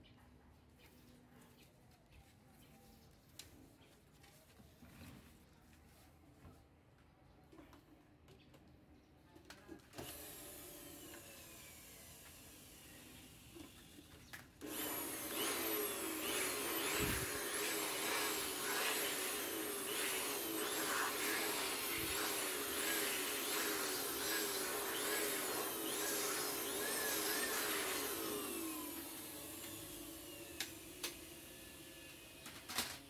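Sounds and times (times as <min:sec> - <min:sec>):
small electric motor running: 0:10.0 - 0:33.0.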